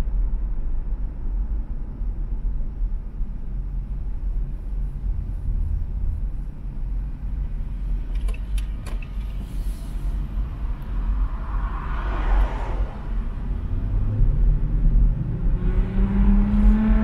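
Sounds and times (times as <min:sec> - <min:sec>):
car driving low rumble: 0:00.0 - 0:17.0.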